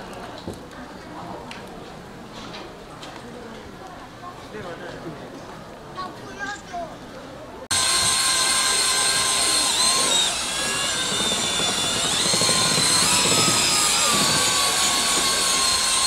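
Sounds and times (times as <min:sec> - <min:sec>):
electric whisk motor whine: 0:07.7 - 0:16.0.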